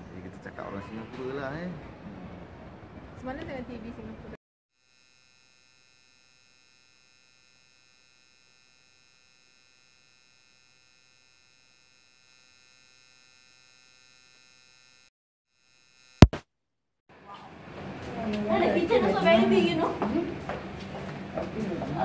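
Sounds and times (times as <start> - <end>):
sharp loud click: 16.2 - 16.4.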